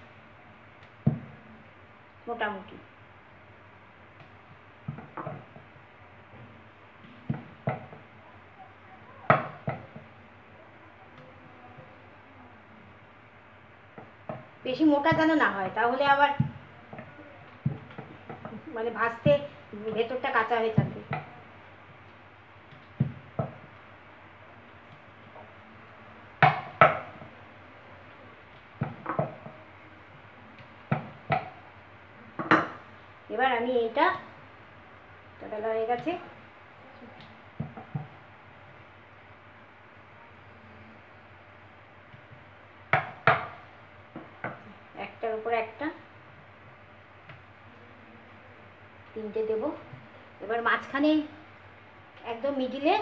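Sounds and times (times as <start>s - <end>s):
rolling pin knocking on board: 22.7s - 23.6s, 26.4s - 27.3s, 28.8s - 29.5s, 30.9s - 31.5s, 37.6s - 38.2s, 42.9s - 44.6s.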